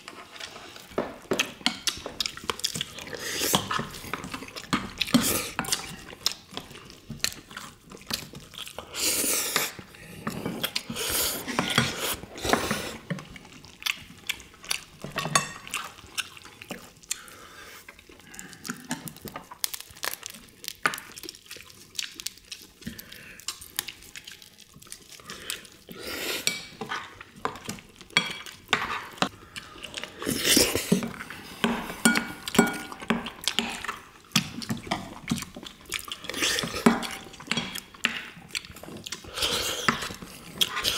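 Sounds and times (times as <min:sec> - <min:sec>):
people chewing: 0:00.0 - 0:40.9
utensils clinking on ceramic bowls: 0:31.6 - 0:33.8.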